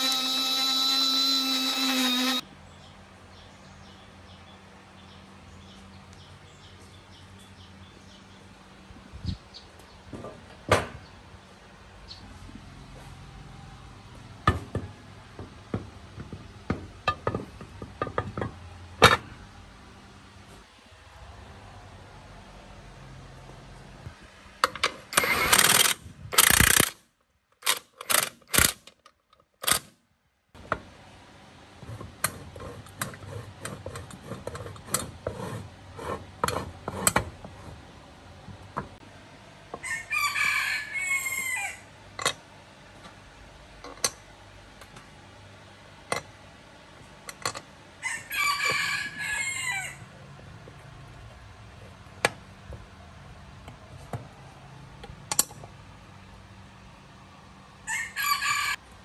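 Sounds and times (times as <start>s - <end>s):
metal parts clicking and knocking: 24.6s - 27.0s
rooster crowing: 39.8s - 41.9s, 48.0s - 50.2s, 57.8s - 58.9s.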